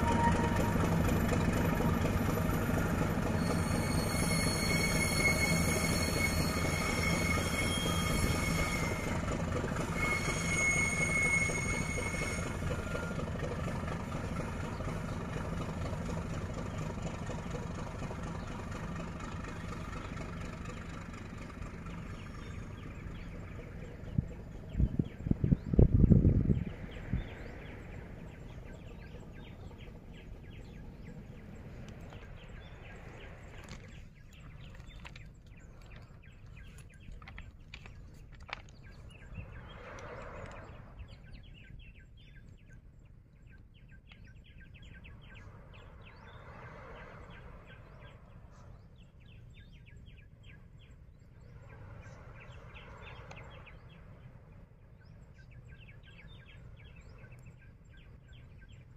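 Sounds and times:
lower bird call: 0:00.0 - 0:02.5, 0:03.2 - 0:15.8
birds chirping rapidly: 0:19.4 - 0:58.9.

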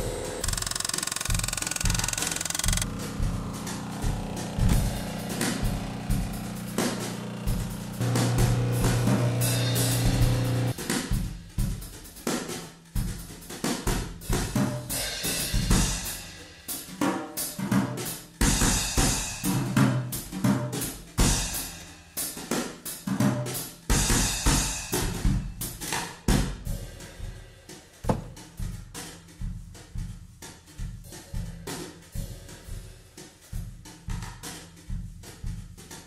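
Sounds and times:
drum kit beat: 0:01.3 - 0:36.0
held chord: 0:02.9 - 0:10.7.

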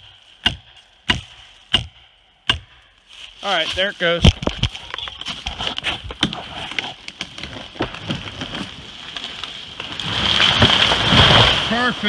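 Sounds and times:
tree falling with wood cracking: 0:04.2 - 0:12.0.

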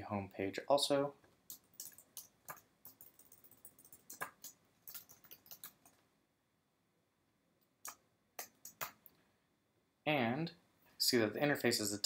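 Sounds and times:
computer keyboard keystrokes: 0:01.5 - 0:06.0, 0:07.9 - 0:09.0.

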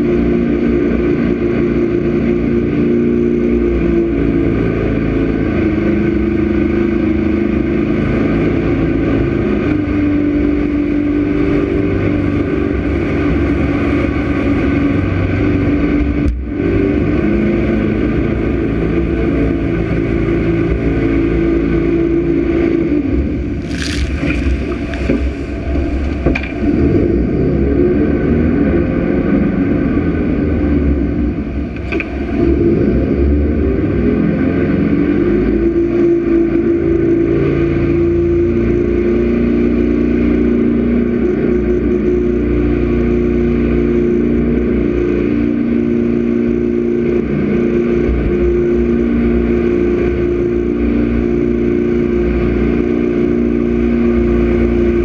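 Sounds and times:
jet boat engine running: 0:00.0 - 0:55.0
wind and water rushing: 0:23.0 - 0:28.4.

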